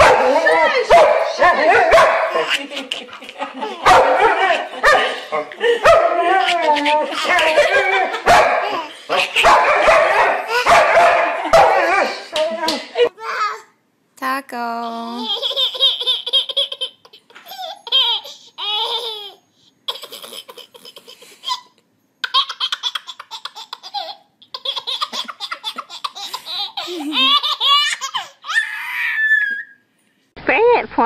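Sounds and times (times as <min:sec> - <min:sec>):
baby laughing: 0:02.3 - 0:10.7, 0:15.1 - 0:29.7.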